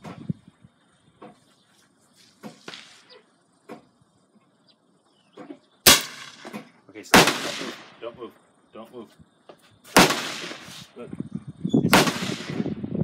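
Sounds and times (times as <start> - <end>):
gunshots with echo: 7.1 - 8.0, 10.0 - 10.7, 11.9 - 12.7.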